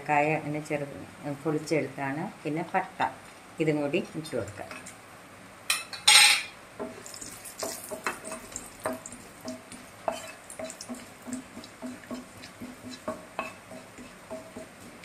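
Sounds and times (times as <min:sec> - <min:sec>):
spatula scraping and tapping pan: 0:05.7 - 0:15.0
faint oil sizzle: 0:06.8 - 0:15.0.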